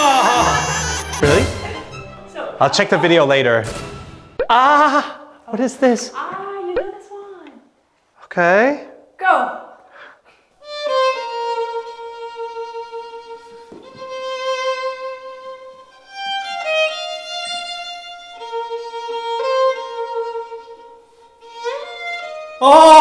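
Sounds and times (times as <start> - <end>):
solo violin melody: 10.6 - 22.6.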